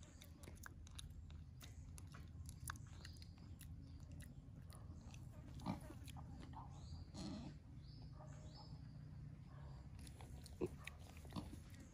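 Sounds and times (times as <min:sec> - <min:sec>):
pig chewing: 0:00.0 - 0:06.7, 0:10.0 - 0:11.9.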